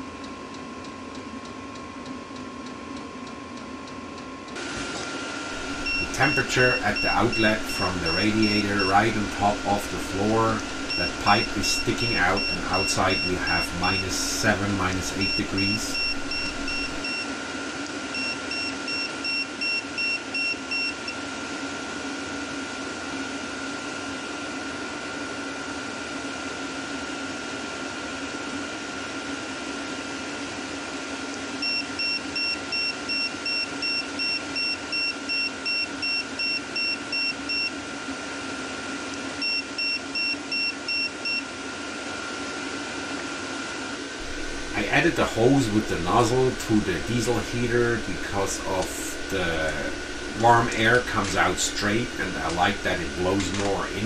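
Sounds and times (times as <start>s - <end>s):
diesel heater humming: 4.6s - 17.2s, 44.0s - 54.0s
thermometer beeping rapidly: 5.6s - 17.2s, 44.2s - 54.0s.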